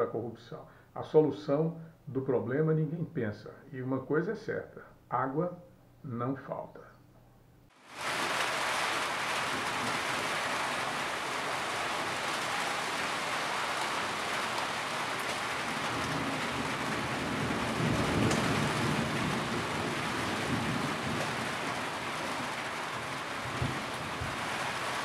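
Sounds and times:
heavy rain falling: 7.7s - 25.0s
water dripping off roof edge: 7.8s - 25.0s.

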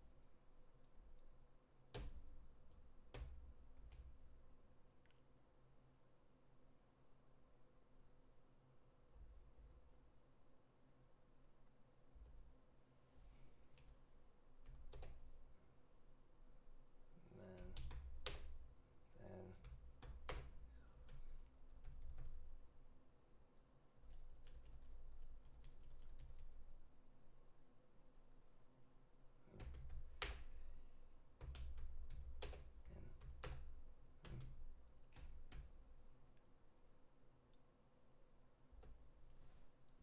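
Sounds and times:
faint keyboard typing: 0.8s - 5.2s, 9.0s - 10.1s, 12.1s - 12.6s, 13.7s - 15.6s, 17.2s - 26.9s, 29.4s - 36.5s, 38.6s - 39.4s.

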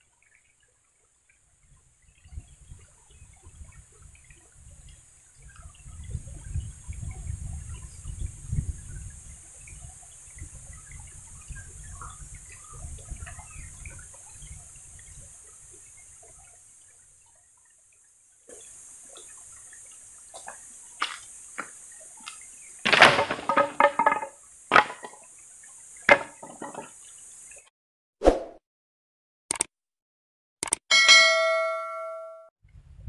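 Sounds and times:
steady high hiss: 18.5s - 22.8s
knocks and clacks of stones: 20.4s - 25.2s, 26.1s - 27.0s.

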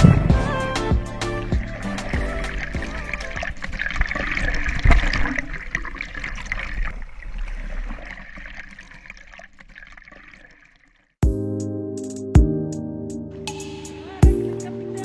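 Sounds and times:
water sloshing and gurgling: 0.1s - 11.2s.

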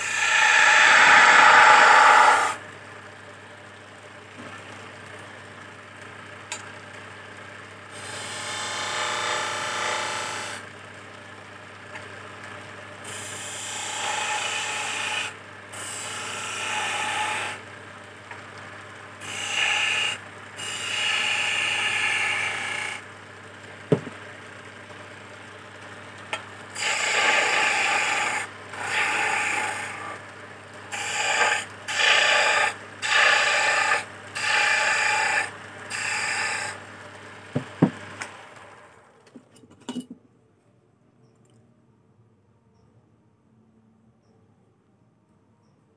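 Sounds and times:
chisel scraping spinning wood: 0.0s - 2.6s, 26.7s - 30.2s, 30.9s - 36.8s
lathe motor hum: 0.0s - 2.6s, 13.0s - 17.6s, 19.2s - 23.0s, 26.2s - 39.1s.

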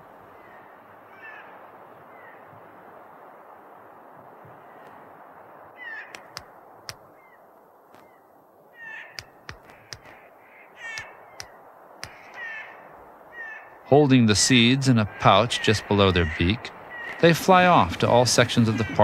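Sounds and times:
steady background hiss: 0.0s - 19.0s
harsh bird calls: 5.8s - 19.0s
bird bill tapping on cone: 6.1s - 7.1s, 9.0s - 10.2s, 10.8s - 12.4s.

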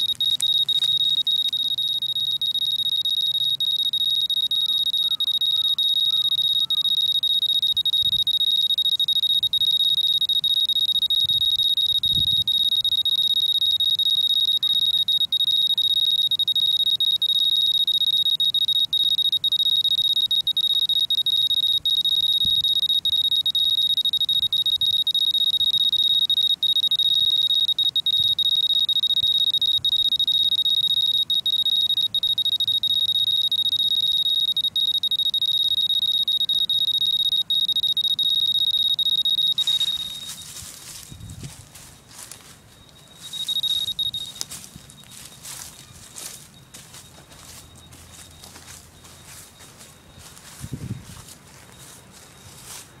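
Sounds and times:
handling noise: 0.0s - 4.5s, 39.4s - 53.0s
radiation meter alarm tone: 0.0s - 53.0s.

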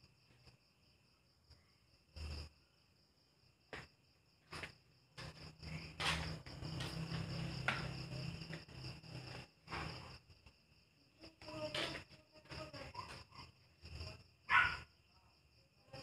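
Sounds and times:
crickets chirping: 0.0s - 16.0s
knocks and rustles: 4.5s - 10.3s.

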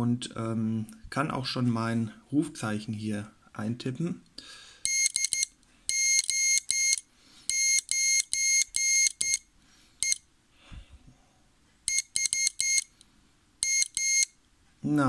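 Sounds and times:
morse code beeps: 4.8s - 9.4s, 10.0s - 10.2s, 11.9s - 12.9s, 13.6s - 14.4s.

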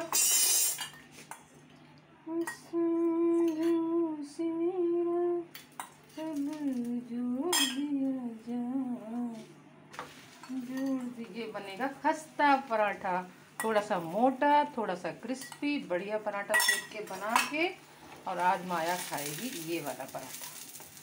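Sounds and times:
woman humming: 2.2s - 5.5s, 6.2s - 9.6s, 10.5s - 11.3s
metal ladle clinking on griddle: 16.5s - 17.6s.

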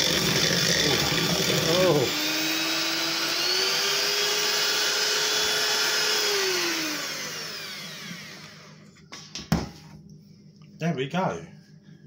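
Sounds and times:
hand mixer motor whining: 0.0s - 8.8s
hand mixer winding down: 0.0s - 8.8s.

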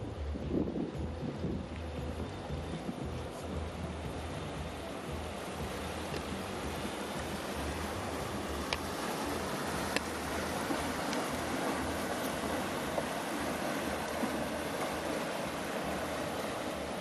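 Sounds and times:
barge engine rumble: 0.0s - 17.0s
bow wave washing against wall: 1.8s - 17.0s
faint clicks: 8.7s - 8.9s.

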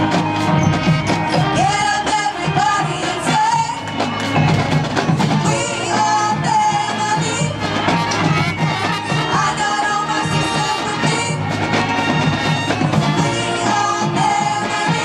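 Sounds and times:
drums and percussion: 0.0s - 15.0s
wind instruments melody: 0.0s - 15.0s.

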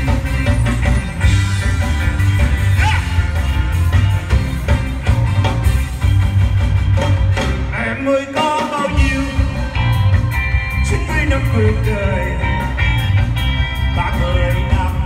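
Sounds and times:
bass guitar: 0.0s - 15.0s
drum kit: 0.0s - 15.0s
electric guitar: 0.0s - 15.0s
man singing into a microphone: 7.7s - 9.8s, 10.8s - 12.8s, 13.9s - 15.0s.

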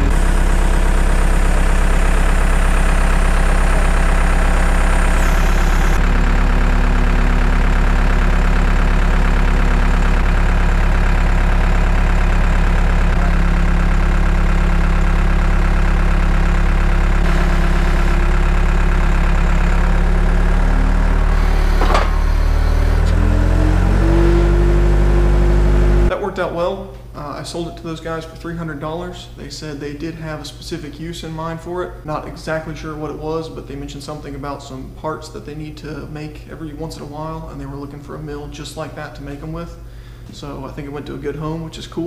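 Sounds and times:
vehicle engine idling and revving: 0.0s - 26.1s.

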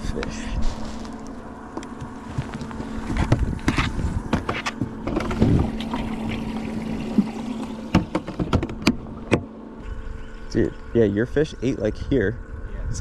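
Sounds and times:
steady low hum: 0.0s - 13.0s
water sloshing and splashing: 0.7s - 10.9s
knocks and clicks from gear: 7.2s - 9.5s.

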